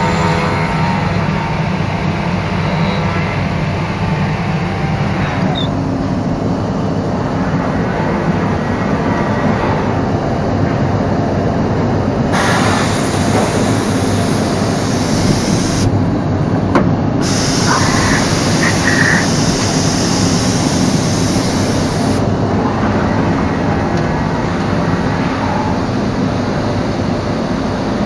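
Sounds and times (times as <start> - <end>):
machining centre running: 0.0 - 28.0
hissing rush: 12.3 - 16.1, 17.2 - 26.0.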